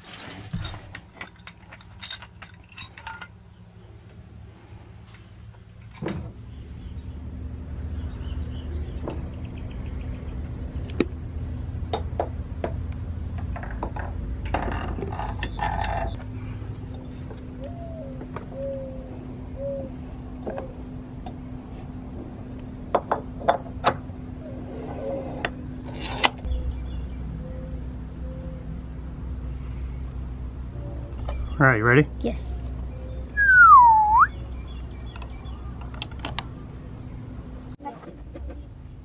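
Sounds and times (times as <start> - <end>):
steady low hum: 0.4 - 39.0
metal clinking and tapping: 0.9 - 3.4.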